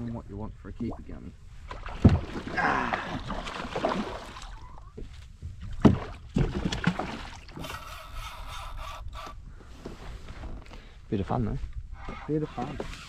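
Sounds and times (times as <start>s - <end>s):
water splashing: 0.9s - 4.9s, 5.8s - 8.2s.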